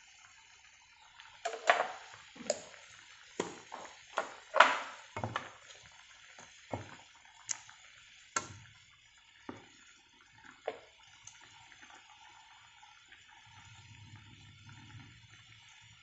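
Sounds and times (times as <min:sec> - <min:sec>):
sauce bubbling: 0:00.0 - 0:16.0
spatula knocking on pan: 0:03.4 - 0:05.7, 0:06.7 - 0:07.0.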